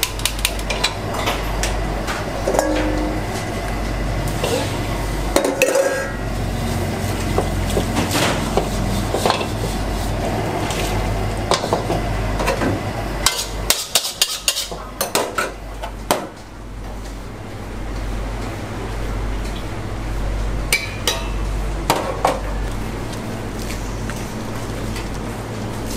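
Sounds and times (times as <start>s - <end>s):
low hum: 0.6s - 8.3s
metal ladle clanking on wok: 2.5s - 3.2s, 5.4s - 6.2s.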